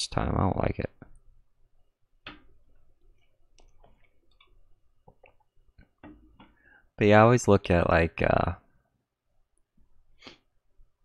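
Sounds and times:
computer mouse clicks: 0:03.2 - 0:06.5.

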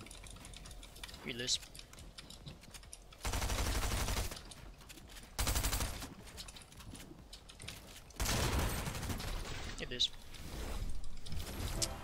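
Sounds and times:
video game automatic gunfire: 0:03.2 - 0:04.6, 0:05.2 - 0:06.3, 0:08.2 - 0:09.7.

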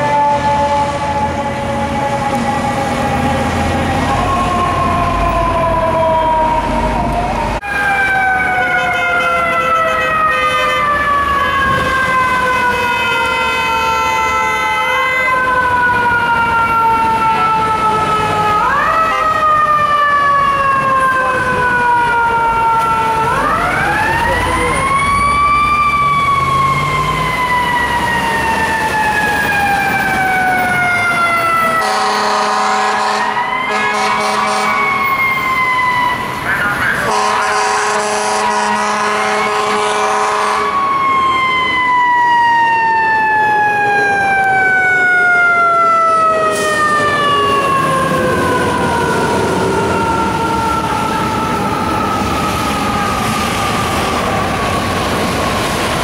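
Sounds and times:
wind-up siren wailing: 0:00.0 - 0:55.6
street traffic: 0:00.0 - 0:56.0.

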